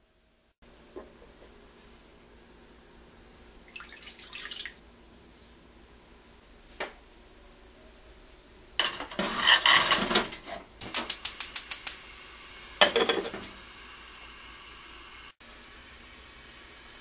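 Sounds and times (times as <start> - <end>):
clay pot scraping on metal grate: 8.9 - 10.7
gas igniter clicking rapidly: 10.8 - 12.0.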